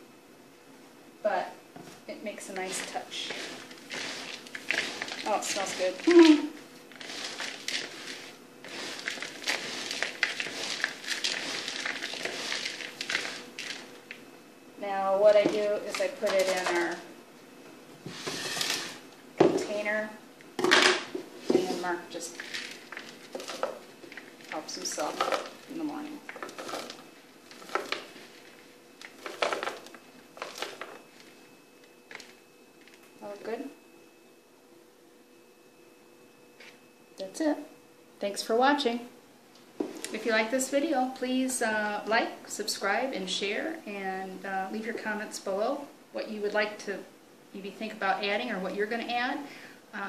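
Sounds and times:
dry flakes rustling in a plastic bowl: 1.9 - 14.3, 14.9 - 17.1, 18.1 - 33.8.

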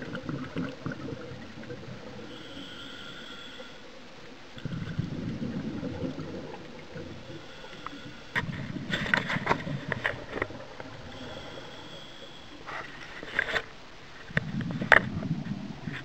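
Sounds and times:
gurgling exhaled bubbles: 0.0 - 2.8, 4.5 - 13.2
regulator air rushing underwater: 0.0 - 13.4.

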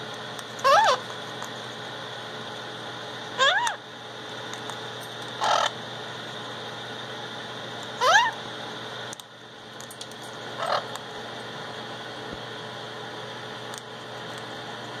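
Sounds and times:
parrot loud rising call: 0.6 - 1.0, 3.4 - 3.8, 8.0 - 8.4.

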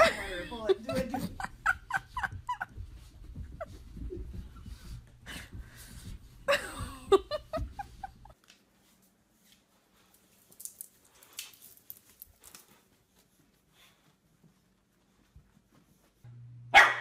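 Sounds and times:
person laughing: 0.0 - 4.6, 6.5 - 8.4
dogs scuffling: 0.0 - 9.0
faint clicks and rustles: 1.2 - 16.3.

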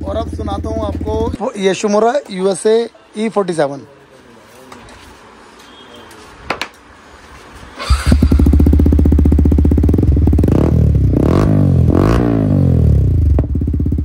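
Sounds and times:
motorcycle engine starting and idling: 0.0 - 1.4, 7.8 - 14.0
motorcycle engine revving: 7.8 - 14.0.

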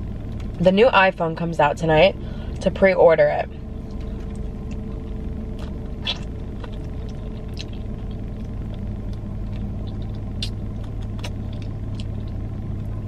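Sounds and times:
car idling hum: 0.0 - 13.0
person eating with wet clicks: 3.9 - 12.4.

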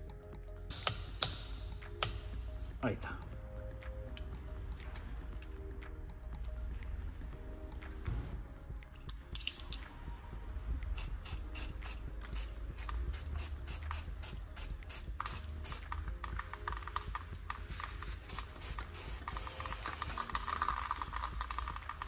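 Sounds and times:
aerosol can spraying: 11.0 - 16.0, 17.7 - 21.5.

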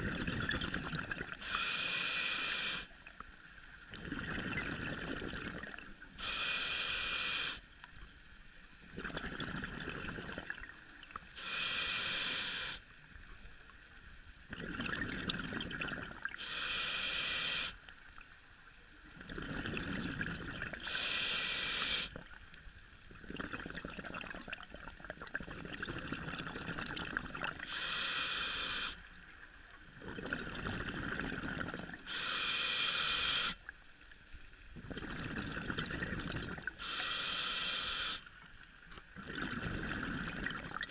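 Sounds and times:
burble of exhaled bubbles: 0.0 - 1.4, 3.8 - 6.0, 8.8 - 11.2, 14.5 - 16.4, 19.1 - 20.8, 23.1 - 27.6, 29.9 - 32.0, 34.7 - 36.8, 38.9 - 40.9
regulator hiss on inhale: 1.3 - 3.1, 6.1 - 8.1, 11.2 - 13.2, 16.4 - 18.0, 20.6 - 22.4, 27.6 - 29.4, 31.4 - 33.7, 36.6 - 38.5.

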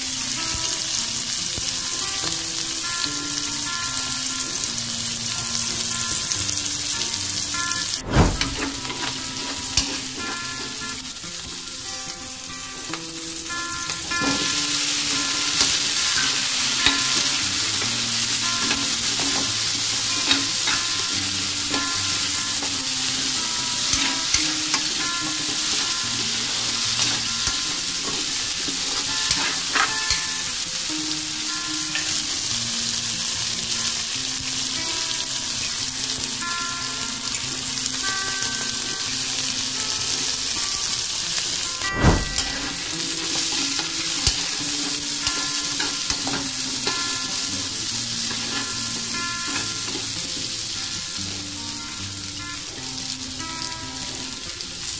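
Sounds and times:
vegetables sizzling in oil: 0.0 - 54.9
sharp knock: 8.0 - 9.1, 41.8 - 42.9.

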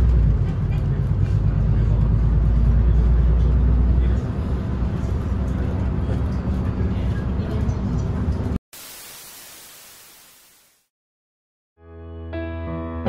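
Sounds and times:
bus engine and road rumble: 0.0 - 8.6
static hiss: 8.8 - 10.9.

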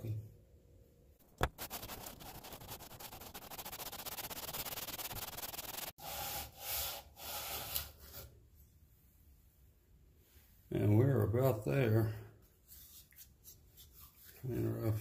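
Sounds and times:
metal rubbing on wet sandpaper: 1.2 - 7.7.

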